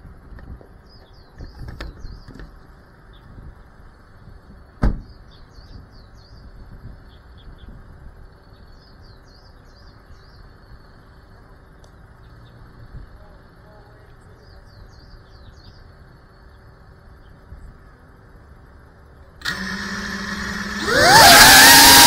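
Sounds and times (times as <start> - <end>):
small birds chirping: 0.8 - 18.2.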